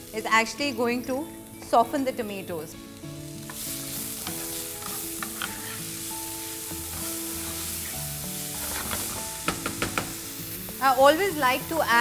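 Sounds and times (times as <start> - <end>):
vegetables sizzling in oil: 0.0 - 12.0
spatula scraping pan: 3.5 - 6.1, 6.8 - 10.2.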